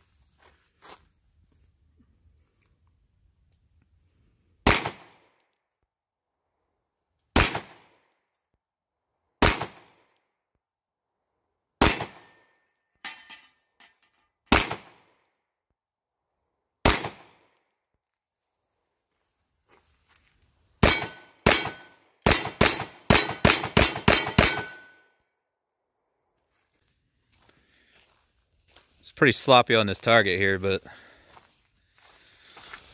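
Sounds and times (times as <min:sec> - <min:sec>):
pistol shots with echo: 0:04.6 - 0:05.3, 0:07.4 - 0:08.0, 0:09.4 - 0:10.1, 0:11.8 - 0:12.5, 0:14.5 - 0:15.1, 0:16.8 - 0:17.5, 0:20.8 - 0:25.0
faint metallic clinks: 0:12.4 - 0:14.4.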